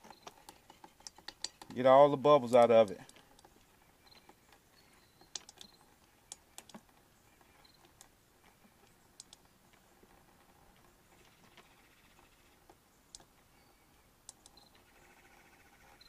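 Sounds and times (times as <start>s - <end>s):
hand pump faint clicks: 0.0s - 11.6s.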